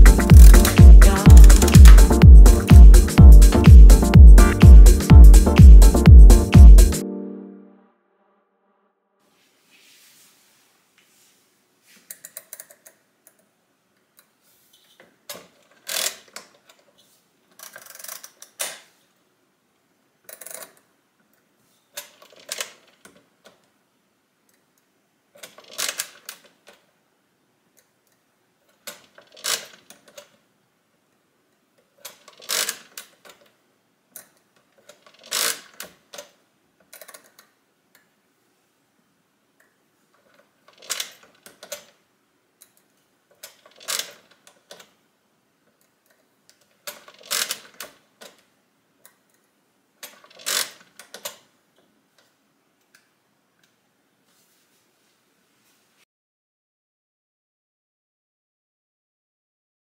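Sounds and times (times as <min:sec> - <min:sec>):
mechanical calculator clicking: 0:00.0 - 0:02.1.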